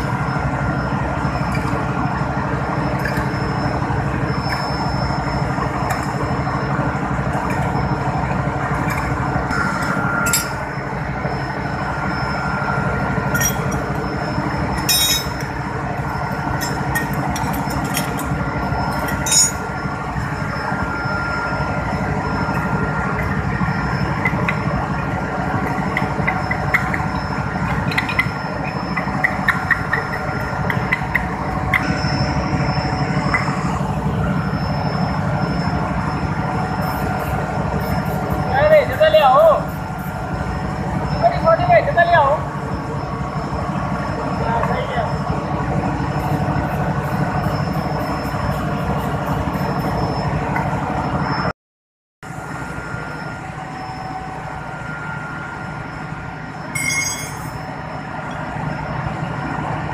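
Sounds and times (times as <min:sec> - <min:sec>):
machinery droning: 0:00.0 - 0:51.5, 0:52.3 - 0:59.9
sharp metallic clinks: 0:14.8 - 0:15.4, 0:18.9 - 0:19.7, 0:56.7 - 0:57.6.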